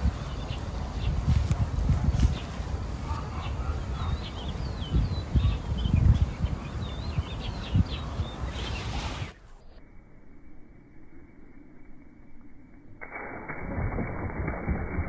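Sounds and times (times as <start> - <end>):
wind and handling rumble on microphone: 0.0 - 3.0, 4.0 - 9.7.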